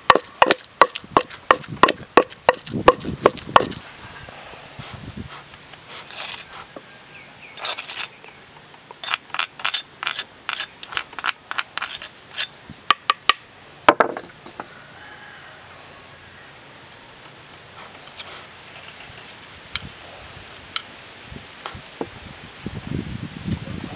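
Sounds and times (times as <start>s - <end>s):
spoon scraping ceramic bowl: 6.0s - 6.5s.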